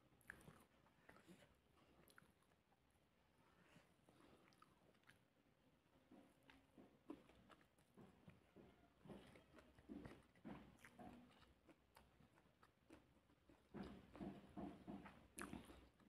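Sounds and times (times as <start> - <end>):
person chewing: 0.2 - 2.8, 3.9 - 5.4, 6.1 - 16.0.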